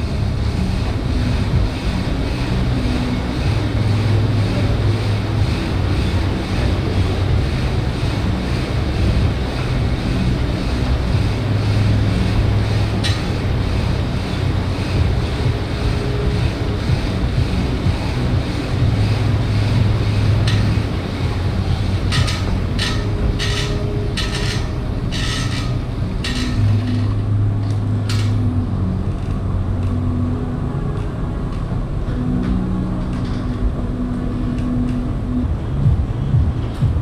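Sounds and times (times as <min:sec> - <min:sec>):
air bike fan whooshing: 0:00.0 - 0:37.0.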